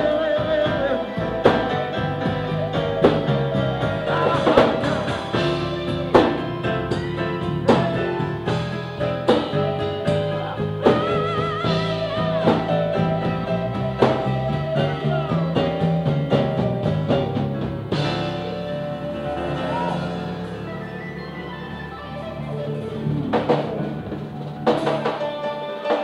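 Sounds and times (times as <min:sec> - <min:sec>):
bass guitar: 0:00.0 - 0:26.0
drum kit: 0:00.0 - 0:26.0
keyboard: 0:00.0 - 0:26.0
wavering high melody line: 0:18.0 - 0:24.5.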